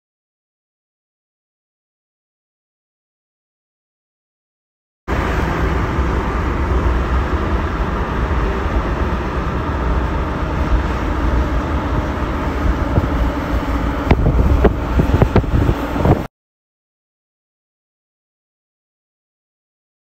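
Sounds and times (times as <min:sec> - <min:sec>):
car road and wind noise: 0:05.1 - 0:16.3.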